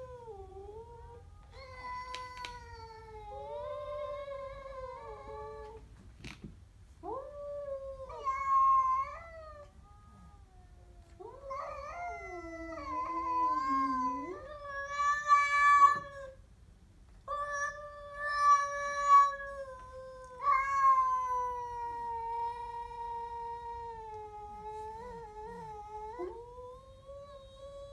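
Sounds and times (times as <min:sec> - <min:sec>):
cat yowling: 0:07.7 - 0:16.4, 0:17.3 - 0:27.9.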